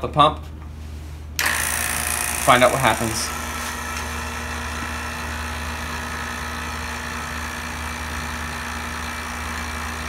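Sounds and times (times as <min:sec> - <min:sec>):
vacuum pump humming: 0:01.4 - 0:10.0.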